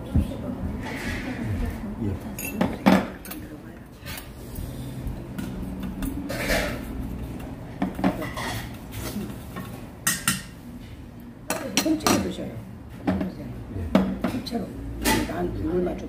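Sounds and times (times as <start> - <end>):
utensils clinking on metal pot: 2.4 - 4.3, 5.3 - 8.8.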